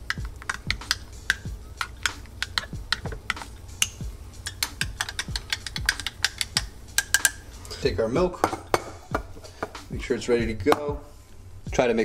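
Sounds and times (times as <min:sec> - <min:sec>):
teaspoon clinking against glass cup: 0:00.1 - 0:07.4
teaspoon clinking against mug: 0:00.1 - 0:07.4.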